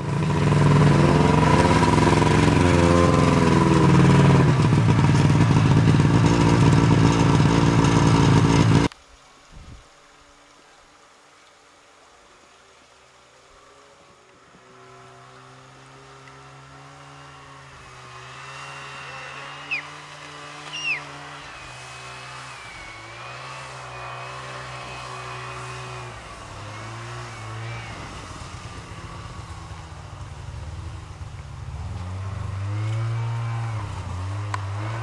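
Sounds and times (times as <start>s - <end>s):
snowmobile engine running: 0.0s - 8.9s, 14.5s - 35.0s
sharp high chirps: 19.7s - 19.9s, 20.7s - 21.1s.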